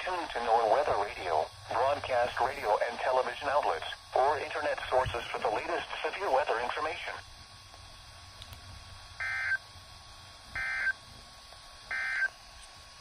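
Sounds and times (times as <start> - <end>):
digital data tone bursts: 9.2 - 9.6, 10.6 - 11.0, 11.9 - 12.3.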